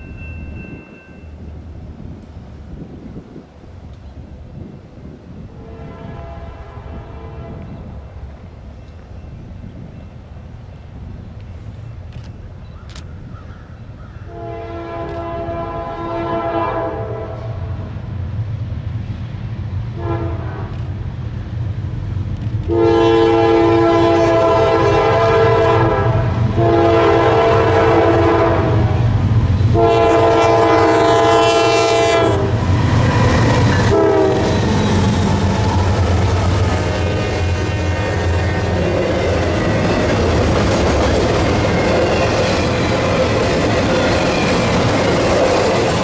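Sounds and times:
train air horn blasts: 5.6s - 7.8s, 14.3s - 17.9s, 20.0s - 20.8s, 22.6s - 32.7s, 33.8s - 35.0s
locomotive engine rumble: 17.2s - 46.0s.

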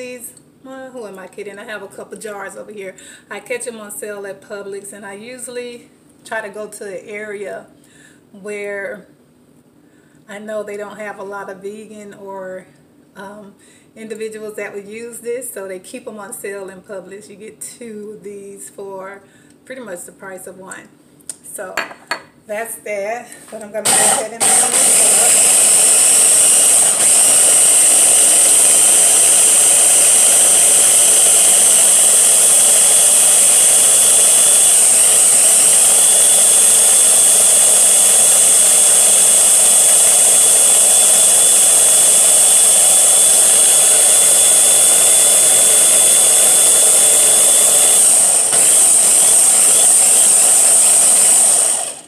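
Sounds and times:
blender motor whining: 23.8s - 52.0s.

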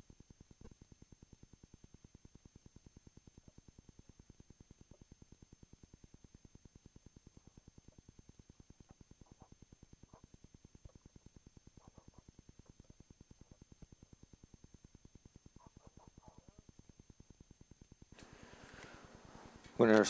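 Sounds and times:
faint pulsing low hum: 0.0s - 20.0s
soft rustles: 18.2s - 20.0s.

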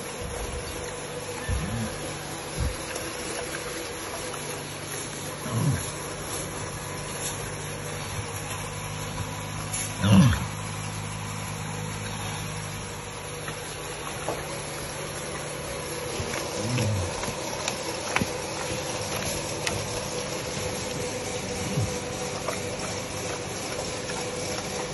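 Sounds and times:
steady low hum: 0.0s - 24.9s
pigs grunting: 1.4s - 2.9s, 5.2s - 6.4s, 9.7s - 11.0s, 16.0s - 20.0s, 20.6s - 23.4s.

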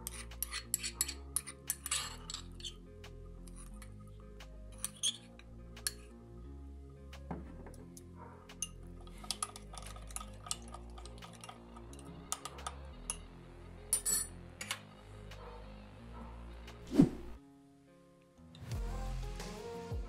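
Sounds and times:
metal spoon clinking on glass: 0.0s - 2.8s, 4.8s - 6.0s, 8.6s - 13.3s, 13.9s - 14.8s
soft background music: 0.0s - 20.0s.

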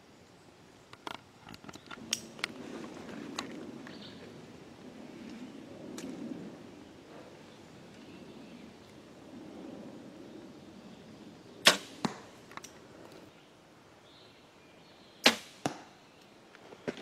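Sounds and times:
arrow striking foam target: 11.7s - 12.2s, 15.2s - 15.9s.

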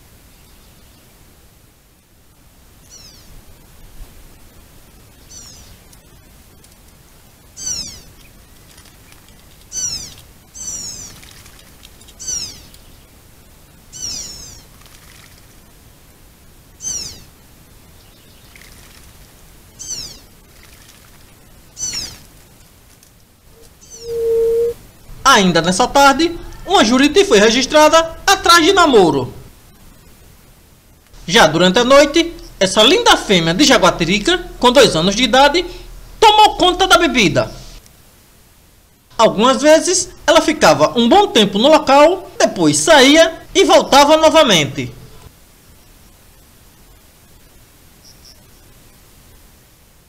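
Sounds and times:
jay calling: 23.5s - 28.8s, 31.2s - 37.8s.

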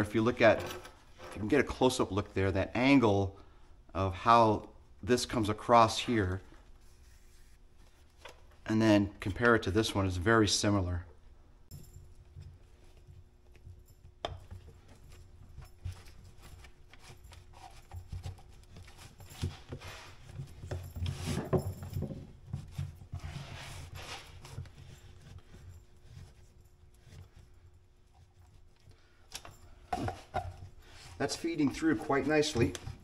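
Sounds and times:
leather strap rubbing and rustling: 6.2s - 8.6s, 14.8s - 33.0s.

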